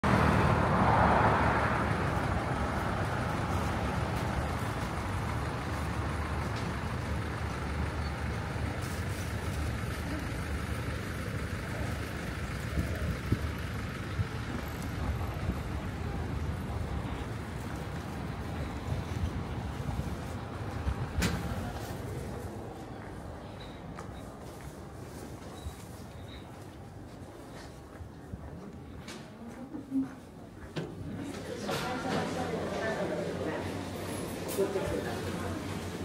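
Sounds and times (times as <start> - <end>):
vehicle passing by: 0.0 - 5.9
steady road traffic: 0.0 - 36.0.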